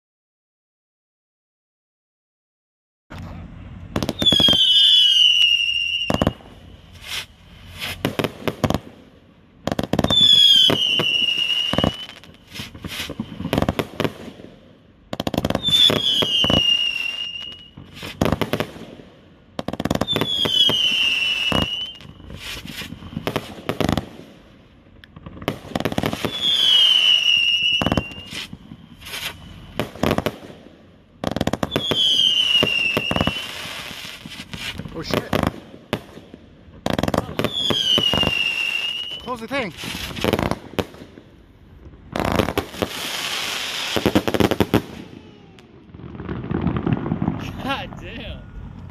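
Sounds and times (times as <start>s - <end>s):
firework bangs and crackling: 3.1s - 48.9s
firework descending whistle: 4.0s - 8.1s, 10.0s - 13.7s, 15.5s - 18.4s, 20.0s - 23.8s, 25.8s - 30.3s, 31.5s - 35.2s, 37.1s - 40.6s, 42.2s - 47.7s.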